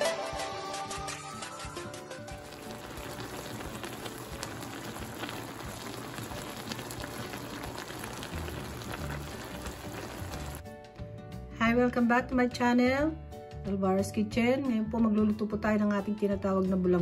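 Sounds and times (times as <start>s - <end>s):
food sizzling in a pan: 2.2s - 10.6s.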